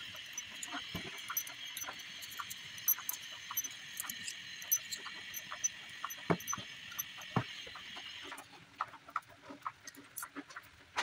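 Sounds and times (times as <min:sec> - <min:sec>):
high-pitched insect drone: 0:00.0 - 0:07.7.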